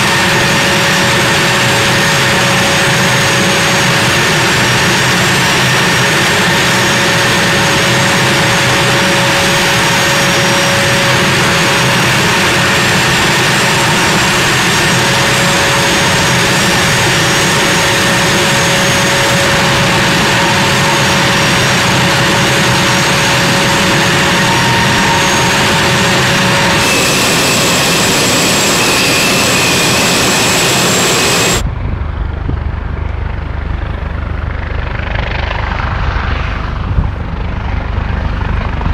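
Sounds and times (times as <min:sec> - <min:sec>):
jet engines roaring with whine: 0:00.0 - 0:38.9
low rumble: 0:23.8 - 0:34.7.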